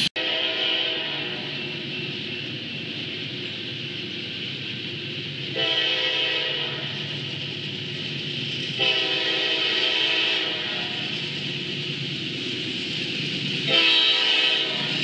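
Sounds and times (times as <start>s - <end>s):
locomotive air horn blasts: 0.2s - 1.6s, 5.5s - 7.0s, 8.8s - 11.0s, 13.7s - 15.0s.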